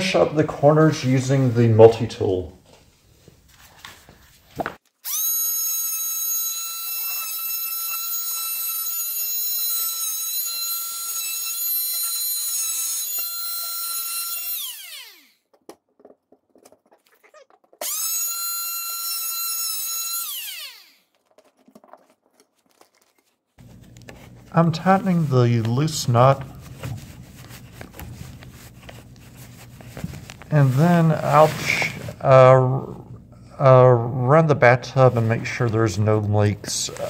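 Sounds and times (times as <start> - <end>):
oscillating multi-tool cutting drywall: 5.0 - 23.3.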